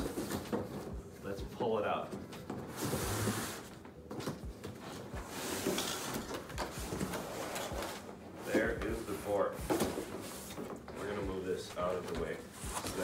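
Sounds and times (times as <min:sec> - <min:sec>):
cardboard box scraping and sliding: 0:02.7 - 0:03.6.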